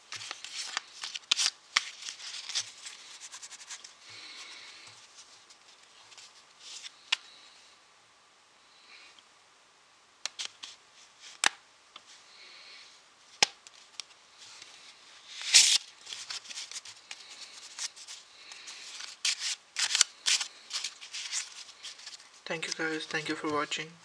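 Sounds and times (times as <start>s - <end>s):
playing cards snapping: 10.2s - 10.7s, 11.3s - 11.6s, 13.4s - 14.1s, 19.3s - 20.9s
card deck riffle: 15.4s - 23.6s.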